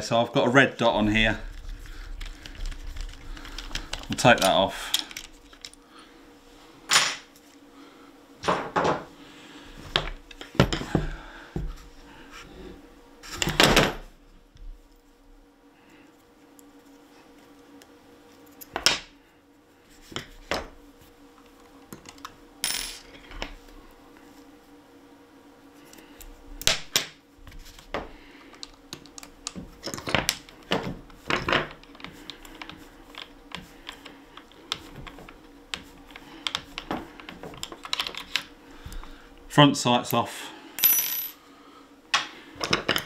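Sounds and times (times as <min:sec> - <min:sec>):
faint steady hum: 0:00.0 - 0:43.0
small metal parts clinking: 0:40.8 - 0:41.4.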